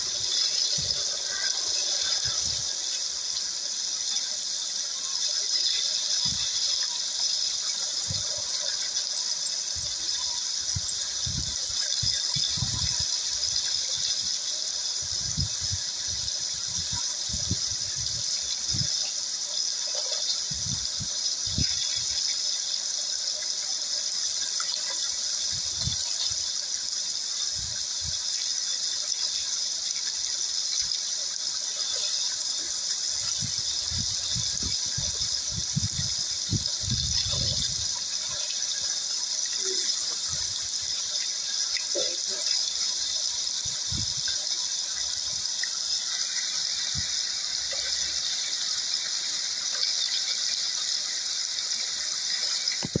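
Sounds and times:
stream rushing over gravel: 0.0s - 53.0s.

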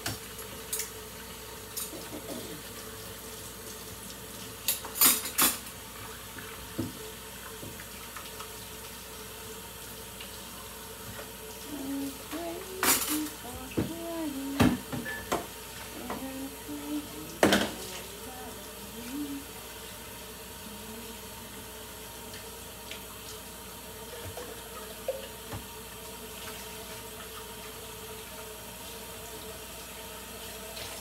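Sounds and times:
dishes washed with sponge: 1.6s - 9.3s, 10.2s - 23.4s, 24.0s - 27.8s
clinks of utensils and dishes: 4.7s - 5.6s, 12.6s - 13.9s, 14.6s - 15.5s.

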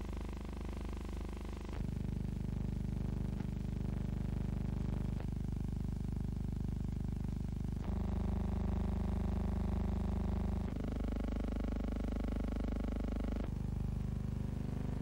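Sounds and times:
buzzy electrical hum: 7.8s - 15.0s.

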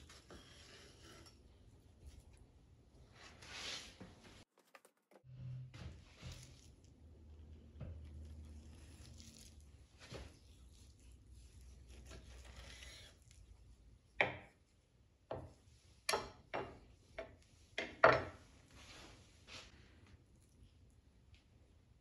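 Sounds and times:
knife scraping through meat: 10.7s - 13.4s.

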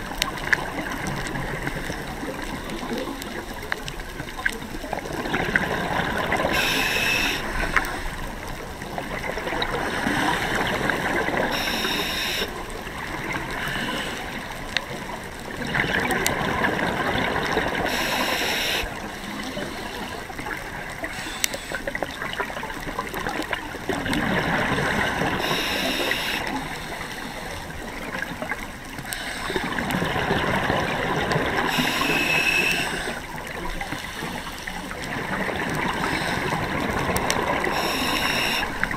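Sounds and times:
gurgling exhaled bubbles: 0.0s - 38.9s
regulator inhale hiss: 6.5s - 8.2s, 11.5s - 12.6s, 13.6s - 14.4s, 17.9s - 20.2s, 21.0s - 22.0s, 25.4s - 27.5s, 29.1s - 29.7s, 31.7s - 33.3s, 36.0s - 36.6s, 37.7s - 38.8s.

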